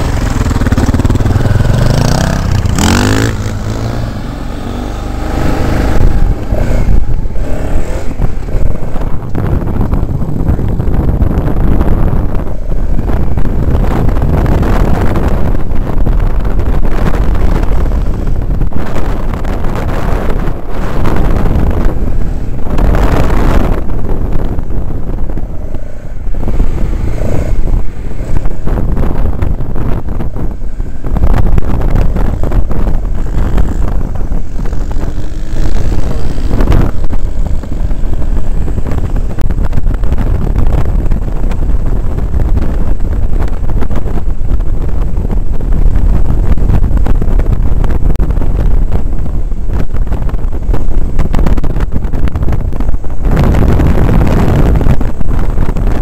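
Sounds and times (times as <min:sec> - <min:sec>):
motorcycle engine running: 0:00.0 - 0:56.0
wind buffeting: 0:00.0 - 0:56.0.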